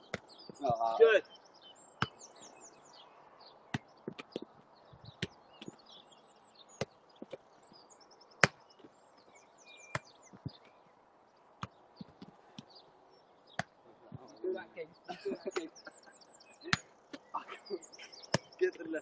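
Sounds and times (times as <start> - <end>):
birds chirping: 0.0 - 19.0
football kicks: 3.7 - 5.8.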